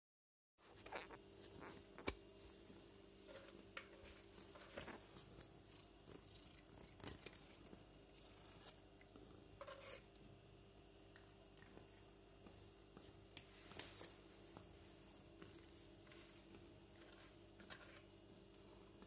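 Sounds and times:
quiet room hum: 0:00.6 - 0:19.0.

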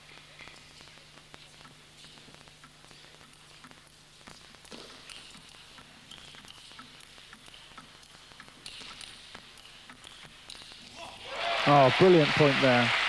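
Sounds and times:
table tennis ball clicking: 0:02.0 - 0:10.9.

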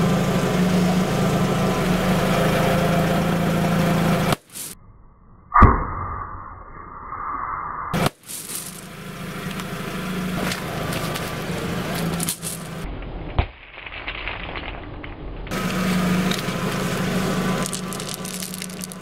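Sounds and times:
car engine idling: 0:00.0 - 0:04.7, 0:08.2 - 0:12.9, 0:15.5 - 0:19.0
sharp snap: 0:05.5 - 0:06.4
crackling and crunching: 0:08.0 - 0:08.9, 0:10.4 - 0:19.0.

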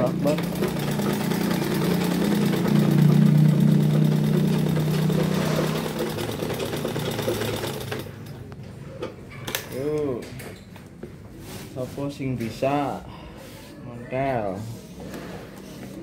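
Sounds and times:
sewing machine stitching: 0:00.0 - 0:08.4.

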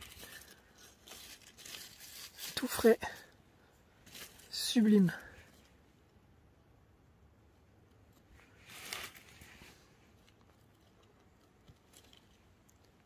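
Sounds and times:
hand rustling dry leaves: 0:00.0 - 0:03.4, 0:04.0 - 0:05.8, 0:08.4 - 0:13.0
faint leaf crackles: 0:00.0 - 0:05.8, 0:08.0 - 0:13.0.

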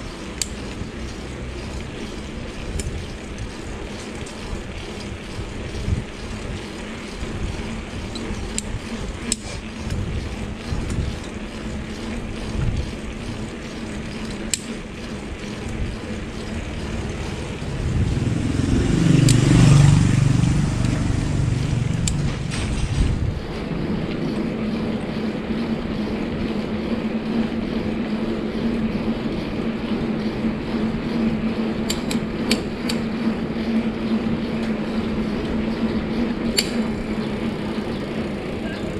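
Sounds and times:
low rumble of bicycle ride: 0:00.0 - 0:38.9
motorcycle engine passing: 0:15.5 - 0:25.0.

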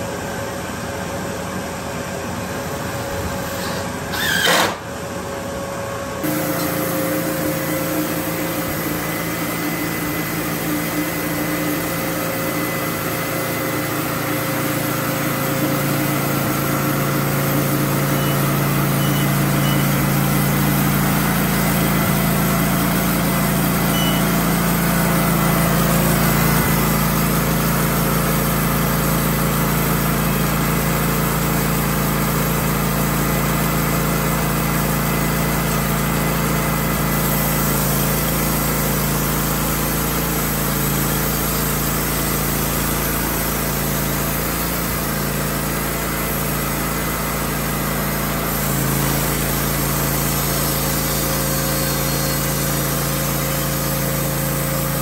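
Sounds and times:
band sawmill sawing log: 0:03.4 - 0:04.9, 0:34.7 - 0:55.0.

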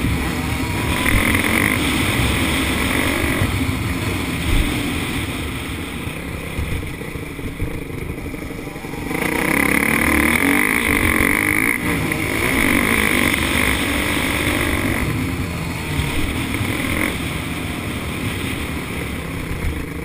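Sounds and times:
dirt bike engine revving: 0:00.0 - 0:20.0.

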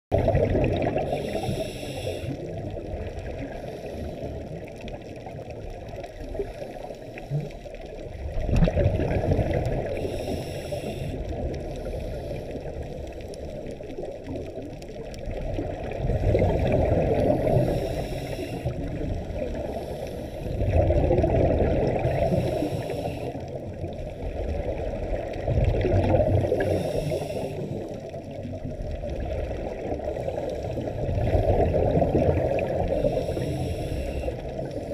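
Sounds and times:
exhaled bubbles bursting: 0:00.1 - 0:01.4, 0:08.1 - 0:10.0, 0:14.0 - 0:17.7, 0:20.5 - 0:22.5, 0:24.5 - 0:26.9, 0:31.0 - 0:33.0
muffled regulator breathing rush: 0:01.0 - 0:02.5, 0:09.8 - 0:13.1, 0:16.4 - 0:20.8, 0:21.9 - 0:23.6, 0:26.4 - 0:28.0, 0:32.8 - 0:34.9.

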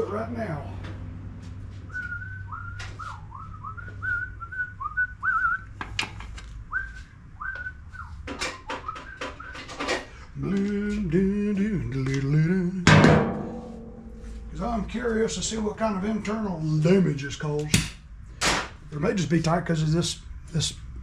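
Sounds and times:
low humming: 0:00.6 - 0:05.9, 0:08.8 - 0:18.3
man whistling: 0:01.9 - 0:05.8, 0:06.7 - 0:09.9.

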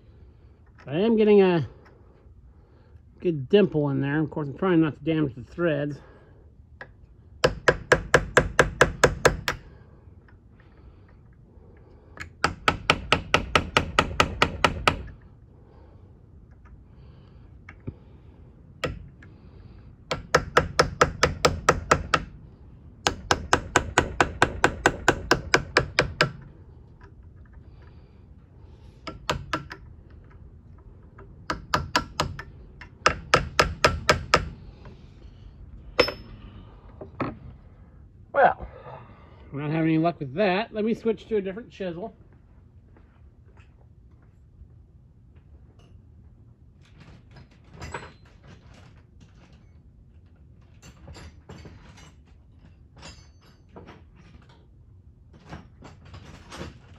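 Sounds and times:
hammer tapping steel tool: 0:36.0 - 0:36.4.

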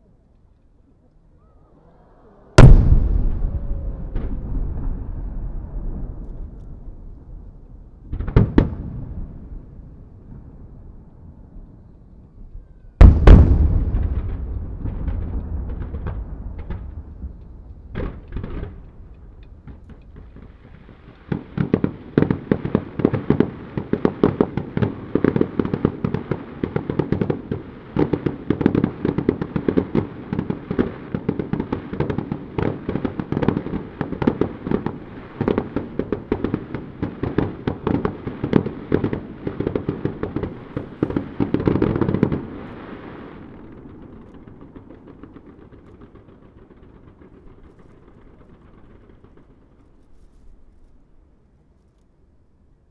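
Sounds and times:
firework bangs: 0:02.6 - 0:10.9, 0:13.0 - 0:51.1
rapid firework pops and cracks: 0:13.0 - 0:51.0.

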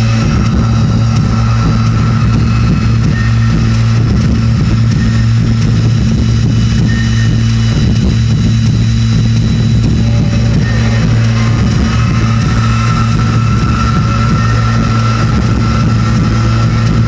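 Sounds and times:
heavy bass drone: 0:00.0 - 0:17.0
faint high tones: 0:09.8 - 0:17.0.

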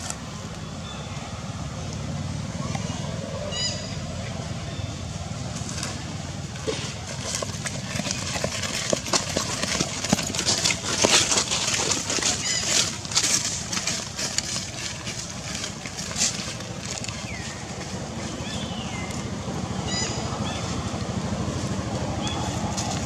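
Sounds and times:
low background rumble: 0:00.0 - 0:23.0
dry leaves and twigs crackling: 0:05.4 - 0:23.0.

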